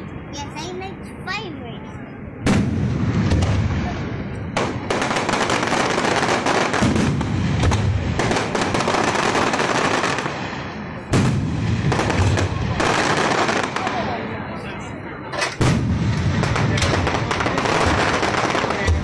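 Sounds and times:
fireworks bangs and crackling: 0:02.4 - 0:19.0.

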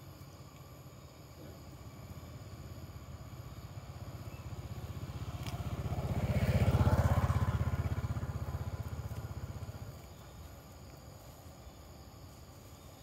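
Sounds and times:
motorbike engine passing by: 0:02.2 - 0:10.8.

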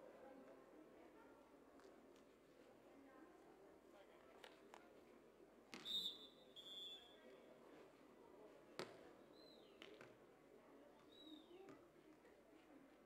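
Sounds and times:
referee's whistle: 0:05.8 - 0:07.1.

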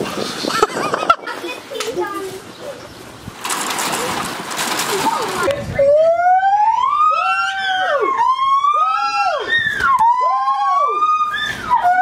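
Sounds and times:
gibbon whoops: 0:07.1 - 0:12.0.

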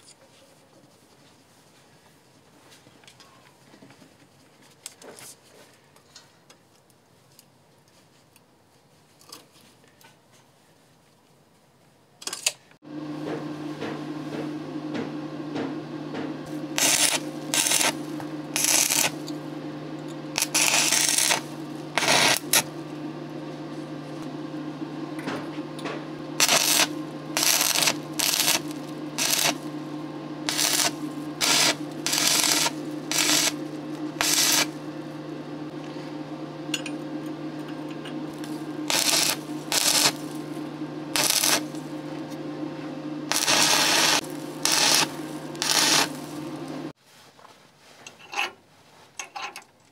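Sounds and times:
welding machine humming: 0:12.8 - 0:47.0
crackling arc bursts: 0:16.4 - 0:24.8, 0:26.1 - 0:35.7, 0:38.3 - 0:46.9.

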